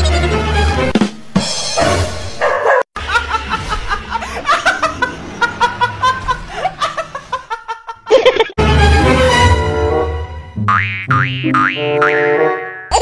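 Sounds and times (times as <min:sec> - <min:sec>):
woman laughing: 0:03.0 - 0:08.6.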